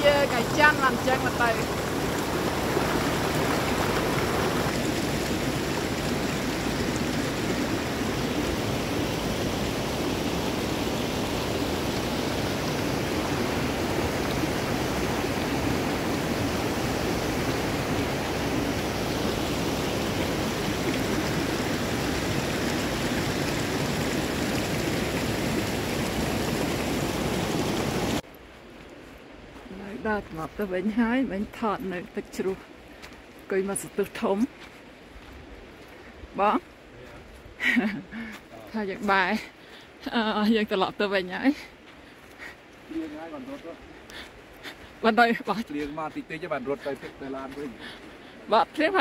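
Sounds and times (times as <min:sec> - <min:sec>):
waterfall pouring: 0:00.0 - 0:28.2.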